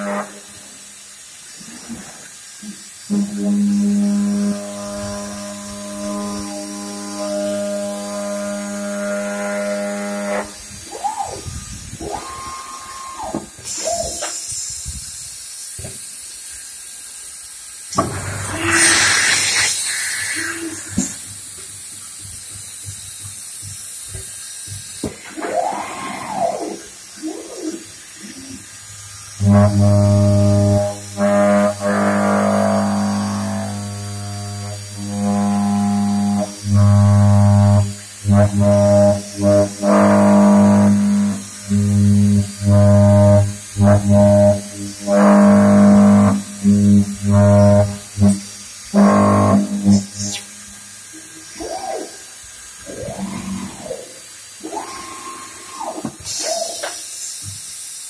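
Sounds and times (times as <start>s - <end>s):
horn-like metal cutting tone: 0.0s - 0.6s, 3.1s - 14.2s, 18.0s - 21.1s, 26.3s - 52.2s, 52.8s - 56.5s
machine spindle whirring: 4.5s - 14.3s, 51.1s - 57.0s
short hiss: 12.8s - 25.4s, 53.8s - 58.0s.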